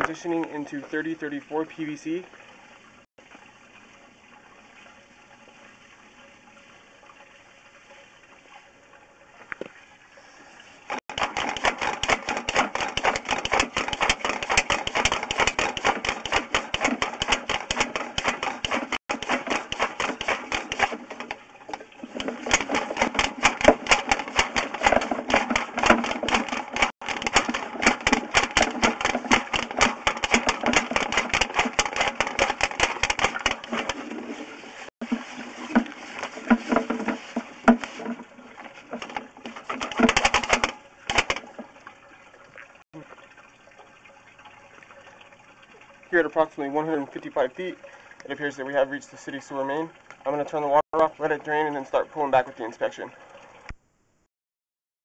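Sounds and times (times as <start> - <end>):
water running in pipe: 0.0 - 53.8
cable rattling in pipe: 11.1 - 41.7.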